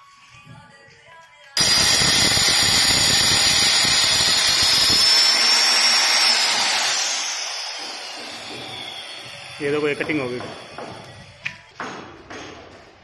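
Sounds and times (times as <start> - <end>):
cutter high whine: 1.6 - 11.2
marble cutter grinding: 1.6 - 11.2.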